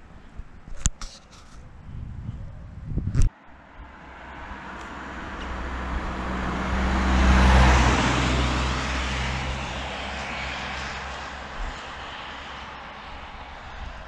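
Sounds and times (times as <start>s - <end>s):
motor vehicle passing by: 3.4s - 14.0s.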